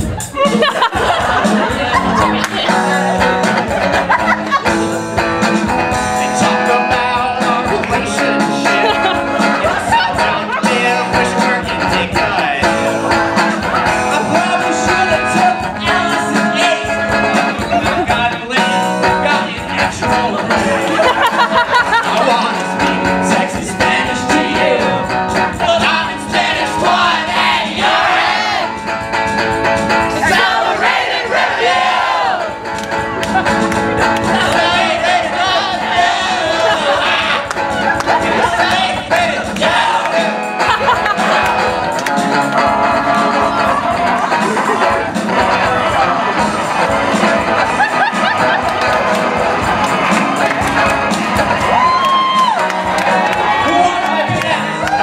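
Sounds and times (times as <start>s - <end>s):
person singing: 0.0s - 28.7s, 34.2s - 49.8s
strummed electric guitar: 0.0s - 55.0s.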